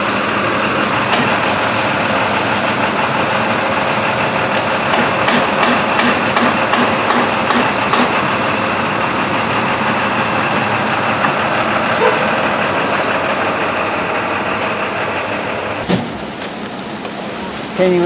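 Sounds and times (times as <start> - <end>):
truck engine idling: 0.0 - 18.0.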